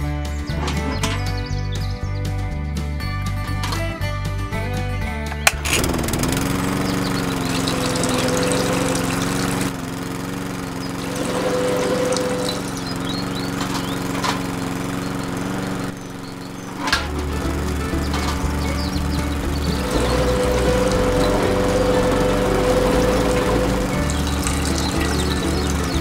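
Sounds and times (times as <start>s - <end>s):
small electric motor humming: 5.5s - 26.0s.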